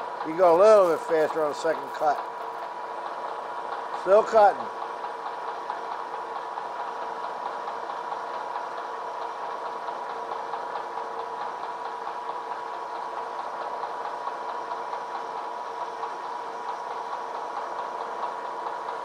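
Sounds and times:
milling machine cutting metal: 0:00.0 - 0:06.8.

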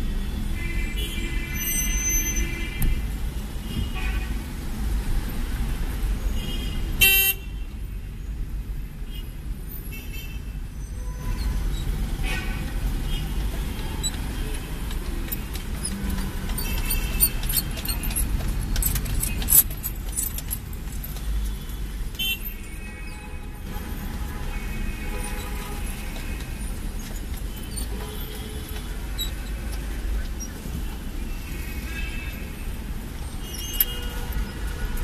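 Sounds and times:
traffic honking: 0:00.0 - 0:04.6, 0:06.2 - 0:08.4, 0:09.1 - 0:20.3, 0:21.0 - 0:35.0
car engine and road rumble: 0:00.0 - 0:35.0
car horn toot: 0:06.4 - 0:07.4, 0:22.2 - 0:23.1.

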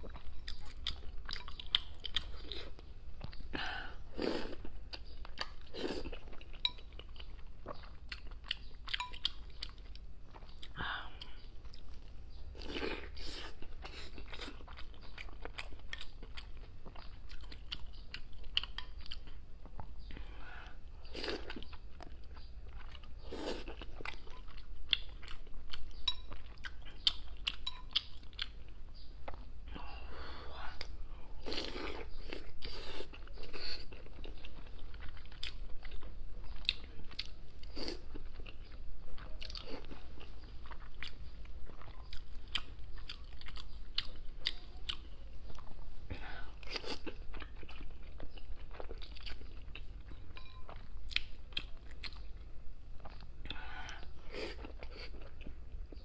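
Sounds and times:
wet chewing: 0:30.8 - 0:56.0.

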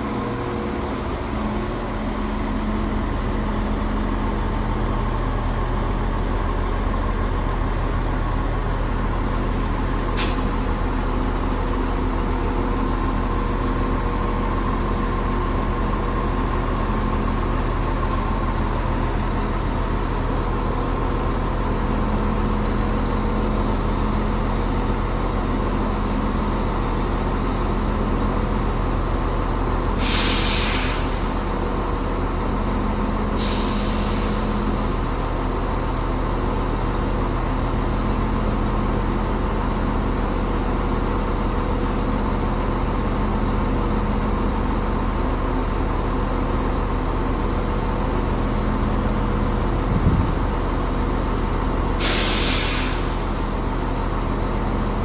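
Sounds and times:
diesel train engine idling: 0:00.0 - 0:55.0
short air hisses: 0:10.2 - 0:10.5, 0:30.0 - 0:31.3, 0:33.4 - 0:34.6, 0:52.0 - 0:53.3
low thud: 0:49.8 - 0:50.5.

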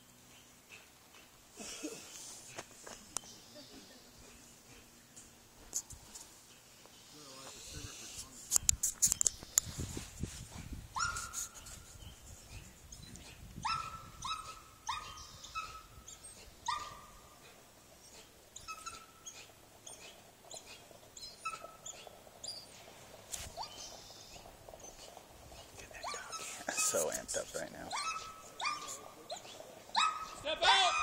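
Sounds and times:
dog barking: 0:11.0 - 0:11.4, 0:13.6 - 0:15.9, 0:16.7 - 0:17.2, 0:27.9 - 0:29.1, 0:29.9 - 0:31.0.

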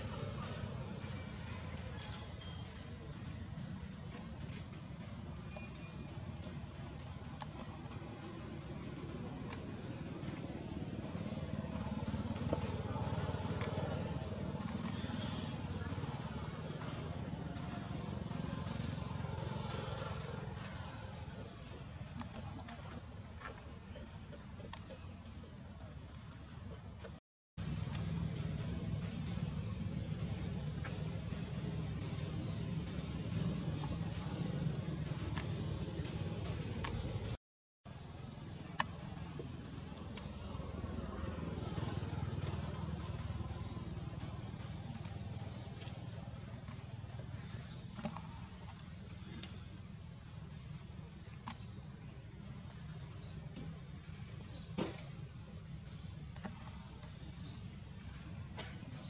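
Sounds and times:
engine rumble: 0:00.0 - 0:59.0
faint high chirp: 0:01.1 - 0:03.2, 0:05.4 - 0:06.5.

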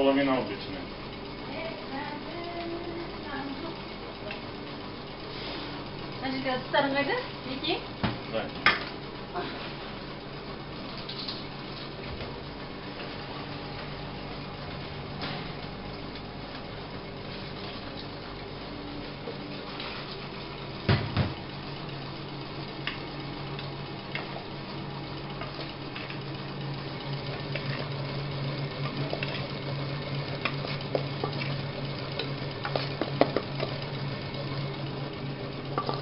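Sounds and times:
stand mixer whisking: 0:21.9 - 0:36.0
metal bowl clinking: 0:35.8 - 0:36.0.

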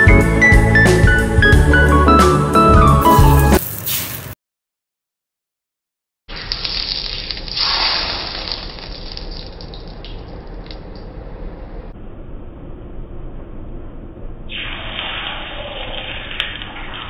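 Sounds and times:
hot oil sizzling: 0:03.1 - 0:04.4, 0:06.3 - 0:10.2.

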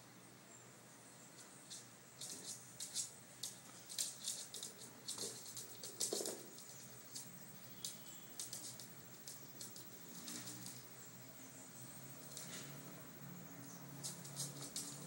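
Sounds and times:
dog claws clicking on hard floor: 0:01.4 - 0:10.8, 0:14.0 - 0:15.0.

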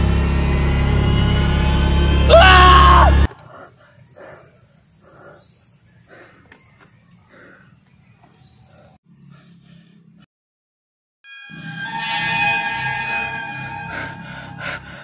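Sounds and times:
eerie horror music: 0:00.0 - 0:03.3, 0:11.3 - 0:15.0
loud wavering pitched cry: 0:02.2 - 0:03.3, 0:11.3 - 0:15.0
high-pitched insect buzz: 0:11.3 - 0:15.0.

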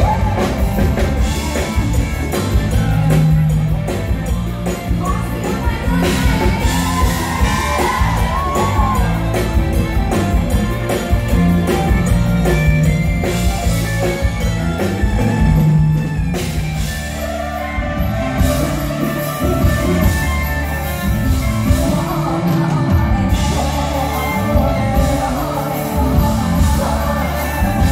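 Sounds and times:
drums steady beat: 0:00.0 - 0:27.9
live band through pa: 0:00.0 - 0:27.9
woman singing into microphone: 0:21.6 - 0:27.9.

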